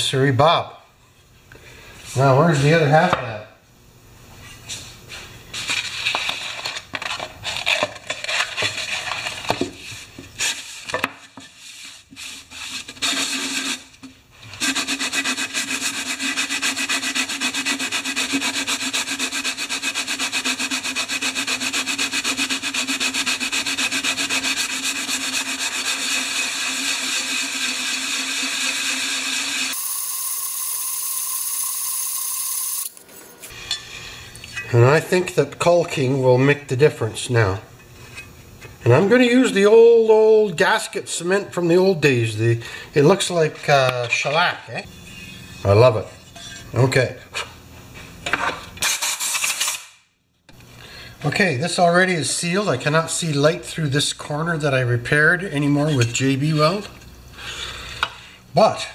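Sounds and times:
metal scraping on sandpaper: 5.5s - 31.3s.

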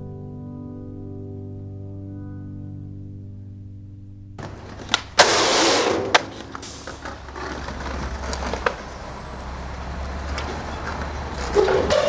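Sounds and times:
skateboard clacks: 4.4s - 9.1s
skateboard scraping: 4.4s - 9.2s
skateboard wheels rolling on concrete: 4.4s - 12.0s.

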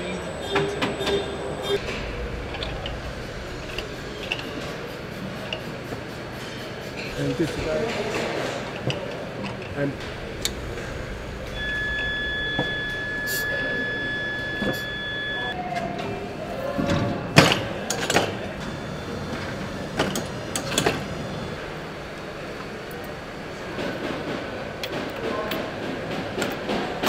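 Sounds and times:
machinery hum: 0.0s - 25.0s
electronic beep tone: 10.0s - 15.6s.

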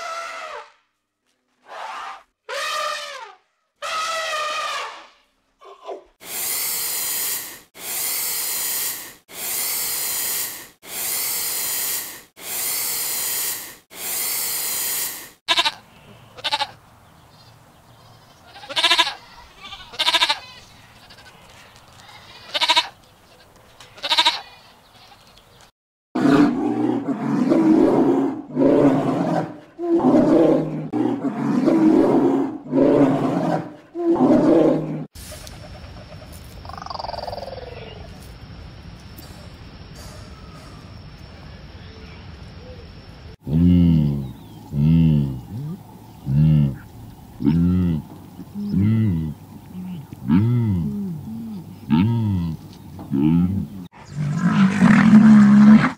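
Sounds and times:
farm animal calls: 15.5s - 16.8s, 18.0s - 25.4s, 43.5s - 55.9s.

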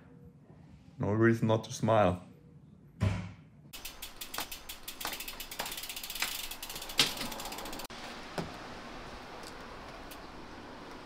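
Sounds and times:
background noise: 0.0s - 11.0s
bicycle freewheel clicking: 3.8s - 7.9s.

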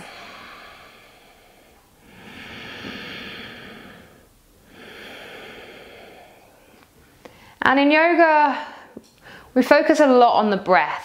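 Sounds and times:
woman breathing deeply: 0.0s - 7.6s, 8.7s - 9.5s.

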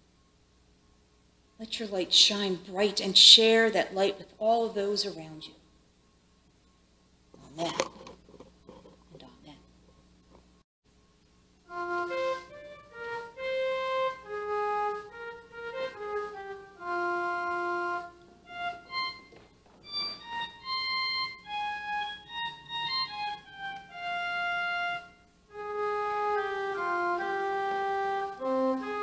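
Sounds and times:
pipe organ slow melody: 11.5s - 29.0s.

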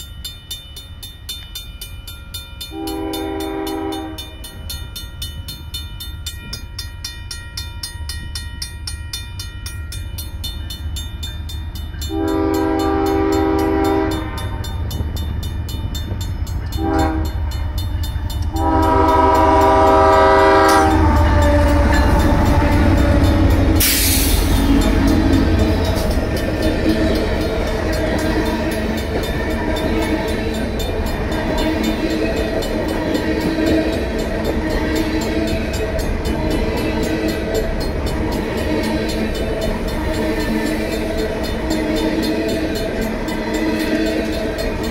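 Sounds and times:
crossing bell ringing rapidly: 0.0s - 44.9s
locomotive air horn blasts: 2.7s - 4.4s, 12.1s - 14.6s, 16.7s - 17.4s, 18.5s - 26.0s
locomotive deep rumble: 12.6s - 44.9s.

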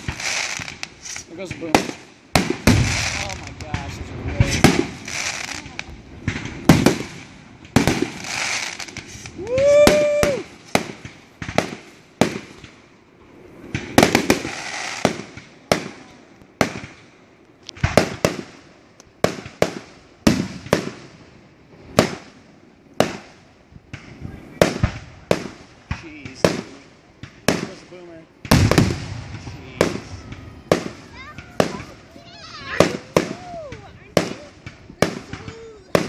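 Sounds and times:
firework shells bursting: 0.0s - 12.9s, 13.6s - 21.1s, 21.8s - 36.0s
hissing crackle: 0.0s - 36.0s
rising firework whistle: 8.2s - 10.9s.

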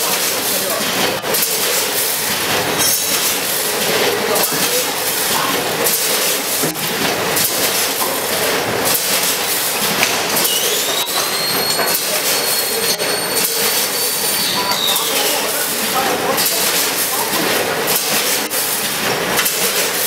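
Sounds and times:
sharp machine clacks: 0.0s - 20.0s
high machine whine: 1.1s - 17.0s.

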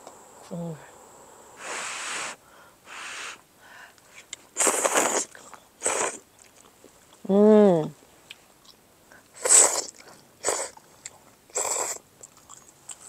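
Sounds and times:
slurping noodle soup: 4.3s - 6.3s, 9.4s - 10.8s, 11.5s - 12.0s.

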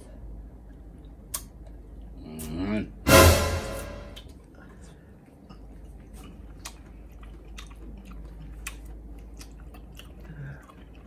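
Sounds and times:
person chewing wetly: 4.7s - 11.0s.

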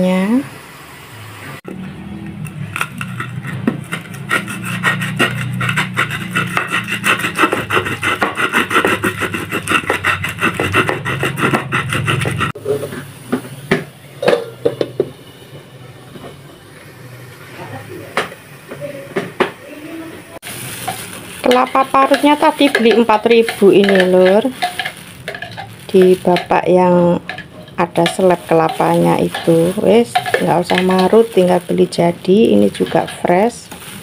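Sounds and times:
stone pestle grinding in mortar: 2.6s - 12.8s, 21.5s - 26.6s, 27.3s - 31.2s.

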